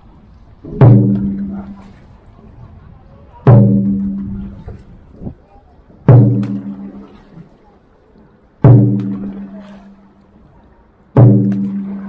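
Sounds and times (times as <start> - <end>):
large drum beats: 0.6 - 2.1, 3.4 - 4.8, 6.0 - 7.4, 8.6 - 10.0, 11.2 - 12.0.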